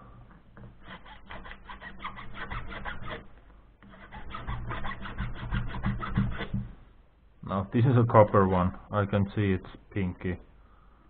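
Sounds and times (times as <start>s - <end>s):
hand file rasping on wire: 0.6s - 6.7s.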